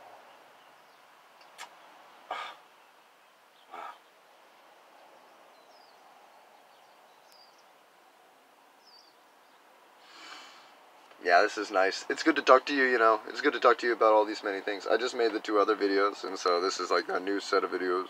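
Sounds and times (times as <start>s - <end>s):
person breathing: 2.3s - 2.6s, 3.7s - 4.0s, 10.0s - 10.8s
faint high bird chirps: 5.2s - 7.8s.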